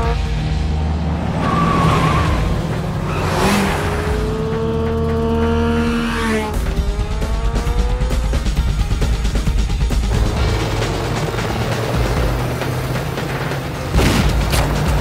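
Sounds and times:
motorcycle engine revving: 0.0s - 15.0s
motorcycle passing by: 3.0s - 8.2s.

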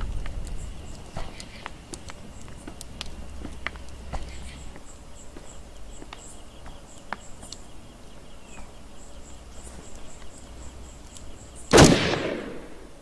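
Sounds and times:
crickets chirping: 0.0s - 13.0s
loud gunshot: 11.7s - 13.0s.

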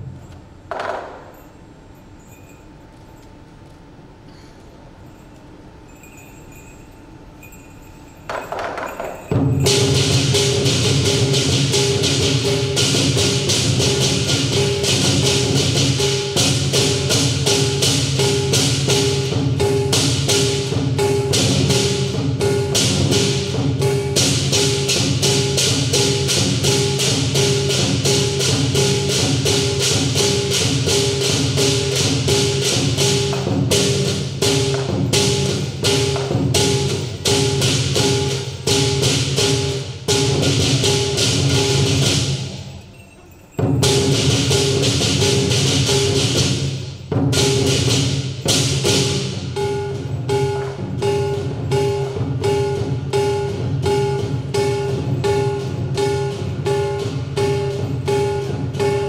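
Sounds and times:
cymbals: 4.3s - 59.0s
gong: 4.3s - 59.0s
big drum: 8.4s - 42.8s, 43.6s - 59.0s.

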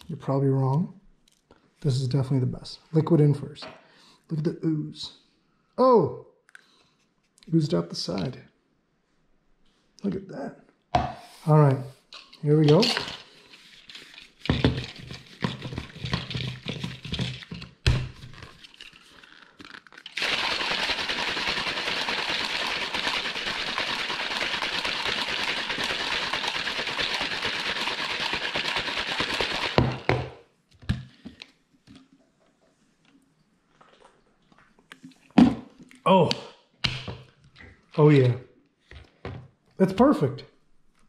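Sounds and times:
plastic cup knocks and clatters: 11.0s - 11.2s, 14.4s - 18.4s, 28.7s - 31.0s
whisk rattling in shaker cup: 13.8s - 17.6s, 19.9s - 30.1s
liquid sloshing: 20.0s - 29.8s.

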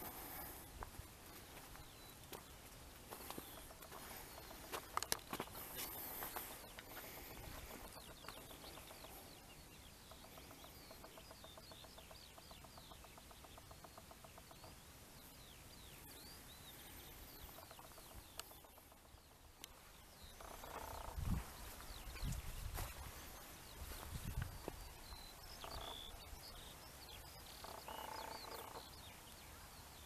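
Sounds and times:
small birds chirping: 0.0s - 30.0s
bird trill: 25.3s - 29.0s.

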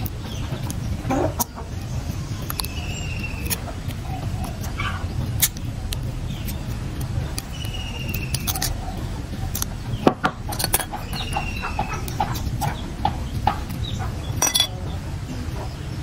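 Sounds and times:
pliers clicking and scraping: 8.1s - 8.8s, 10.5s - 11.0s, 14.4s - 14.8s
animal calls: 11.0s - 12.9s.

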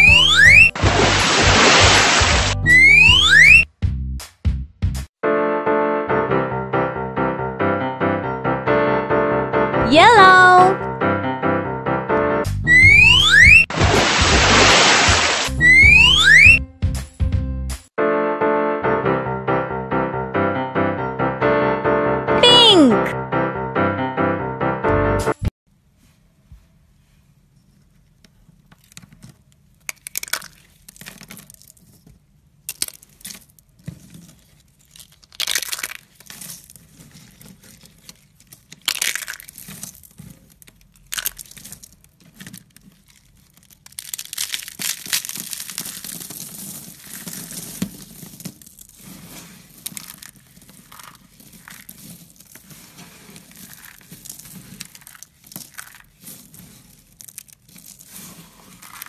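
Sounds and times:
hands crushing brittle paper flower: 28.8s - 32.0s, 32.6s - 59.0s.

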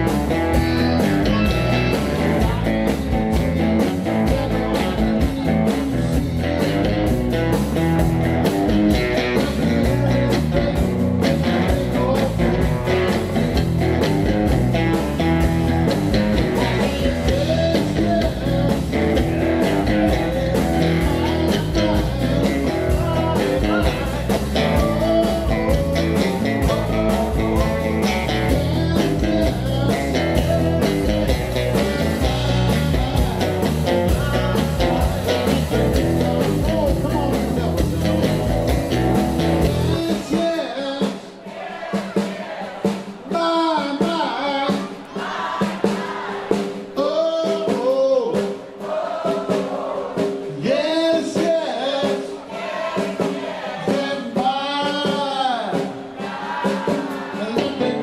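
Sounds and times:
man singing: 0.0s - 8.1s, 8.9s - 13.4s, 14.9s - 41.4s, 43.3s - 45.1s, 46.9s - 48.6s, 50.4s - 52.5s, 53.7s - 58.0s
electric guitar: 0.0s - 40.7s
bass guitar: 0.0s - 40.8s, 57.4s - 58.0s
drums: 0.0s - 58.0s.

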